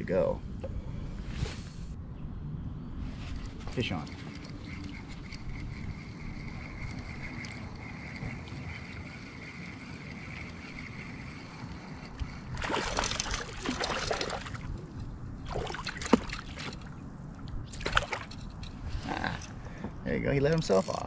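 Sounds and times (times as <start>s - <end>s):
fish splashing in water: 12.5s - 14.7s.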